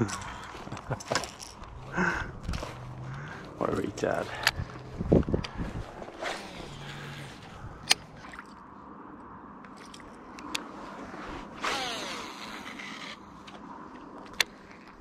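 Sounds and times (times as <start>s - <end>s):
fishing reel spool whirring: 6.1s - 8.0s, 11.6s - 13.2s.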